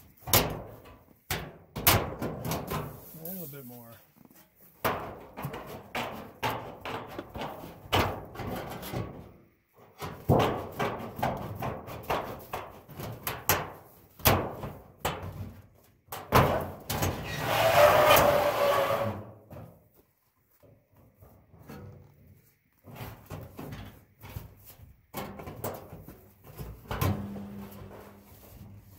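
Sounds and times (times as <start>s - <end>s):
knocks and scrapes on sheet metal: 0.1s - 3.2s, 4.8s - 9.3s, 9.9s - 19.8s, 22.8s - 28.9s
metal scraping on metal: 17.0s - 19.3s.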